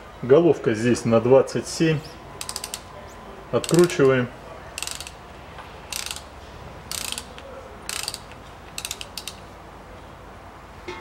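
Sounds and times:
ratchet wrench clicking: 2.4s - 2.9s, 3.6s - 4.2s, 4.8s - 5.2s, 5.9s - 6.3s, 6.9s - 9.5s.

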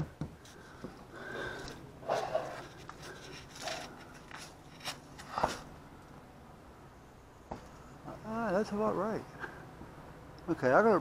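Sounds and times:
rustling: 0.4s - 5.7s.

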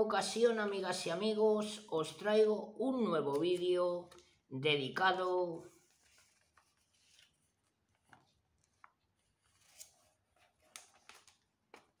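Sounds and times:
faint clicks and rustles: 5.8s - 12.0s.

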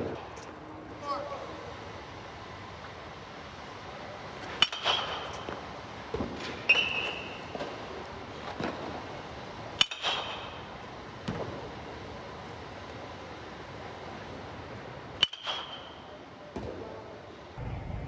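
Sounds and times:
metal bat pinging ball: 4.6s - 5.5s, 9.7s - 10.6s, 15.2s - 16.1s
balls thudding on ground: 11.2s - 11.6s.

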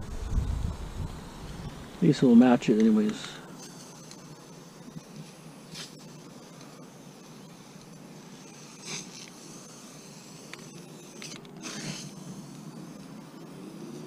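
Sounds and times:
paint brush rubbing strokes: 3.6s - 14.0s.

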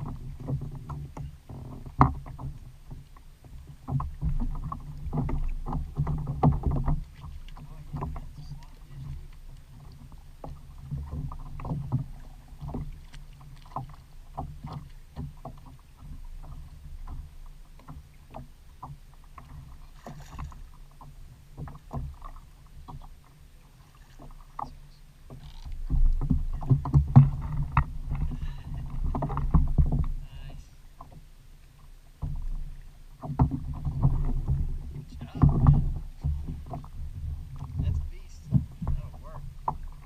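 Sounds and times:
water lapping against kayak hull: 0.0s - 40.0s
low rumble: 33.6s - 40.0s.

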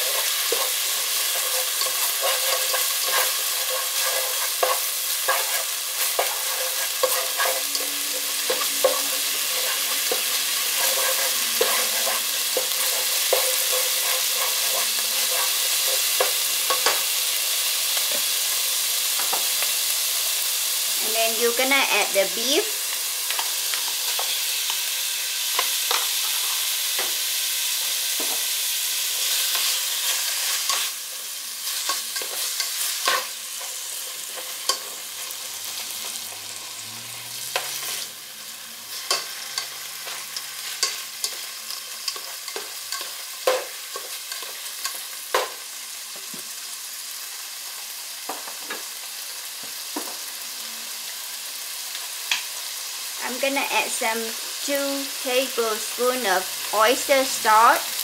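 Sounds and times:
spatula clicking and scraping: 0.0s - 17.1s
beef sizzling in hot oil: 0.0s - 58.0s.

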